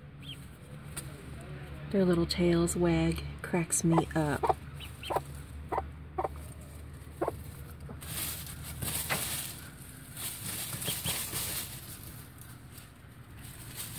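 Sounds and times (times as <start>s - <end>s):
hen clucking: 4.0s - 8.1s, 10.6s - 11.5s
rustling in straw bedding: 6.3s - 13.9s.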